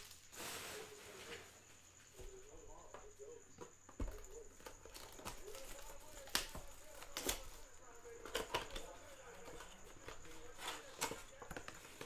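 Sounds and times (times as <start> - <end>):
cards tapping and clicking: 3.9 - 12.0.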